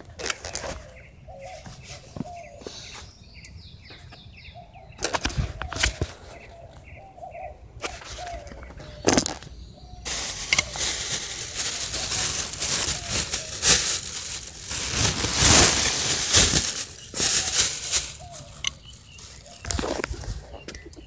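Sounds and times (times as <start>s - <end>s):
close rustling and crinkling: 0.0s - 3.2s, 7.8s - 21.0s
sharp cracks: 10.1s - 18.8s.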